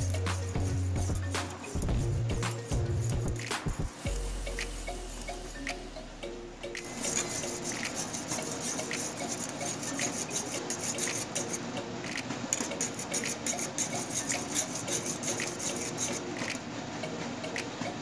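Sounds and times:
whisk scraping a saucepan: 0.0s - 2.1s, 6.8s - 11.7s, 12.6s - 16.6s.

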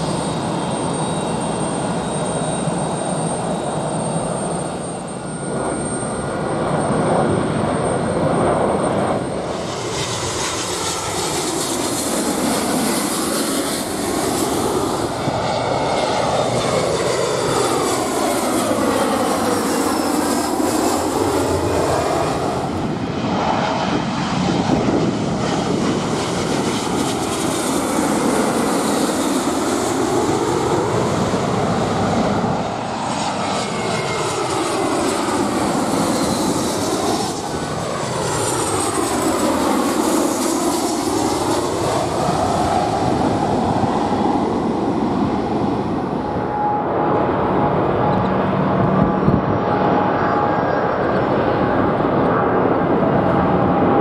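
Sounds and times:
jet airliners passing overhead: 0.0s - 54.0s.

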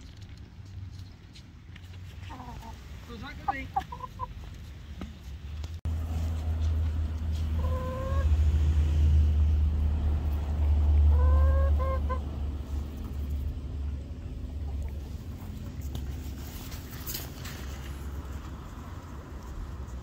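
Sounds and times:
hen calling: 2.3s - 4.3s, 7.5s - 8.3s, 11.1s - 12.3s.

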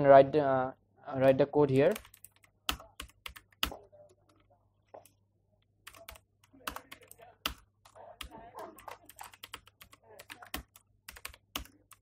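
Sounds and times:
computer keyboard typing: 1.7s - 5.1s, 5.8s - 12.0s.

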